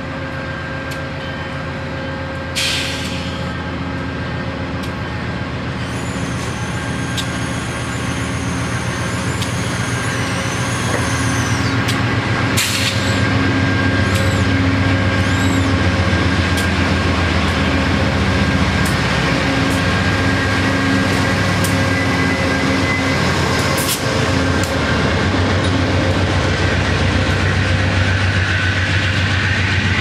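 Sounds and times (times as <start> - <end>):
diesel locomotive running: 0.0 - 30.0
train passing: 0.0 - 30.0.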